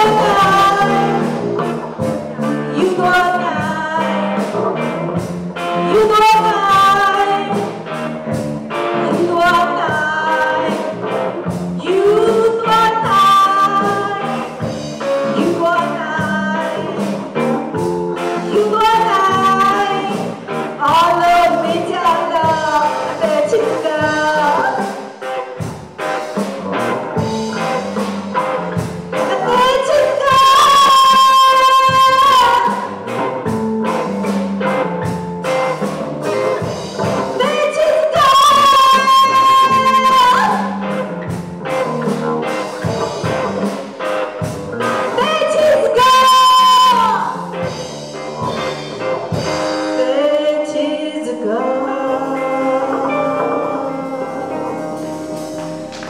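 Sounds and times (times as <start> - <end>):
woman singing: 0.0 - 4.9, 5.8 - 8.1, 8.7 - 25.4, 29.1 - 33.2, 36.6 - 41.0, 45.0 - 47.6, 49.7 - 55.6
bass: 0.0 - 56.0
drums: 0.0 - 56.0
electric guitar: 0.0 - 56.0
keyboards: 0.0 - 56.0.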